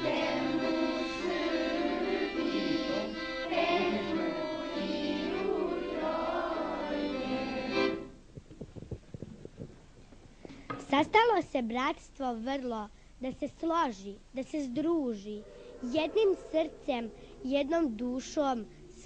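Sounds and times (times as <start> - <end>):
children's choir singing: 0.0 - 8.1.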